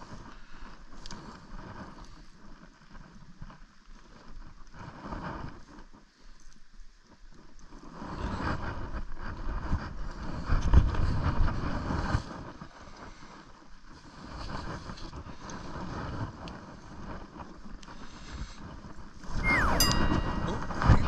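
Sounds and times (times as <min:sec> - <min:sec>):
wind rumbling on microphone: 0:06.8 - 0:21.0.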